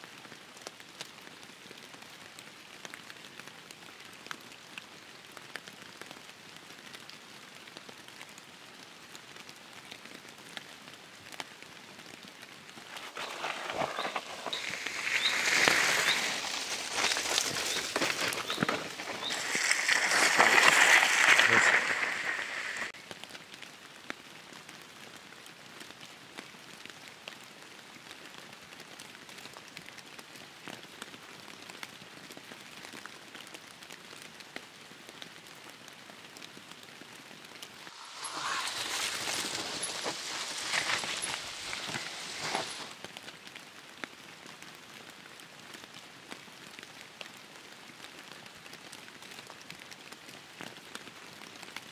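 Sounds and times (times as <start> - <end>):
bike tyres hissing through mud: 12.8 - 23.0, 37.8 - 43.0.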